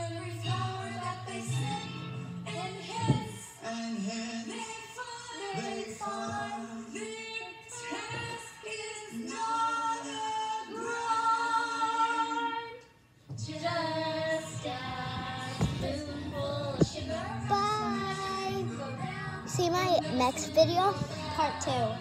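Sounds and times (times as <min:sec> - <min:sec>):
child singing: 0:02.5 - 0:12.6, 0:13.5 - 0:22.0.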